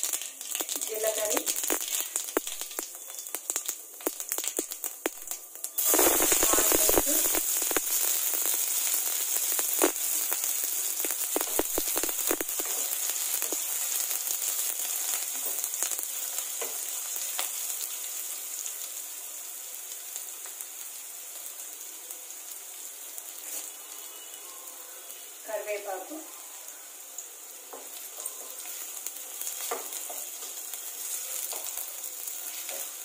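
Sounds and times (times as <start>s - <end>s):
onions sizzling in oil: 0.0s - 33.0s.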